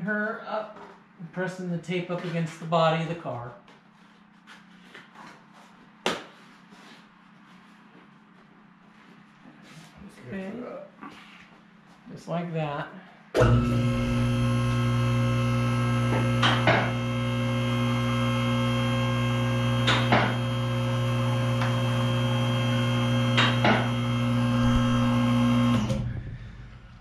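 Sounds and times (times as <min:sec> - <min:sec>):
hydraulic pump motor humming: 0:13.4 - 0:27.0.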